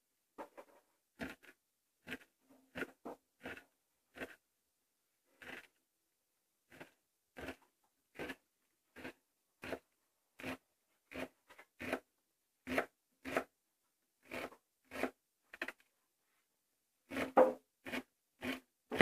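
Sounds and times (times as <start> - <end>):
knife slicing on cutting board: 17.1 - 19.0.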